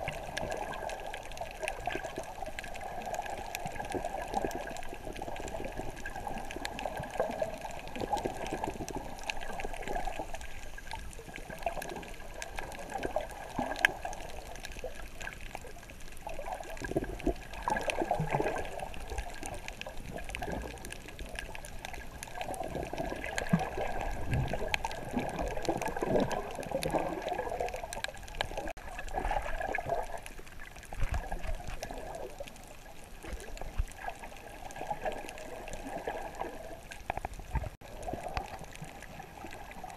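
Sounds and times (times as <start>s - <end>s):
underwater water sloshing and gurgling: 0.0s - 39.9s
faint clicks: 30.0s - 39.9s.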